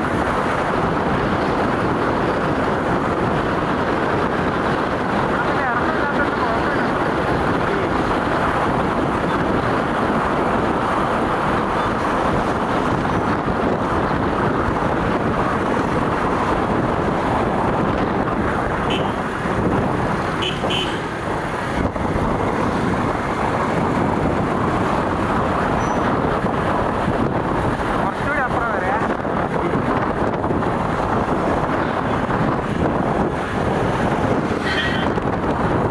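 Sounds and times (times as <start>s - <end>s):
wind and road noise: 0.0s - 35.9s
motorcycle engine: 4.3s - 26.7s
horn toots: 18.8s - 19.2s, 20.4s - 21.1s.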